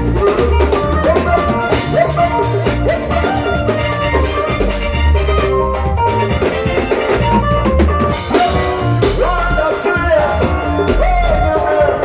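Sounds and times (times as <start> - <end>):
drum kit: 0.0 - 12.0
electric guitars: 0.0 - 12.0
gospel band playing: 0.0 - 12.0
man singing into a microphone: 8.3 - 12.0.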